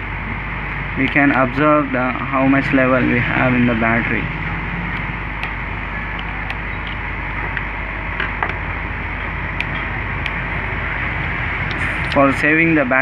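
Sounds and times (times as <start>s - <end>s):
background hiss and rumble: 0.0s - 13.0s.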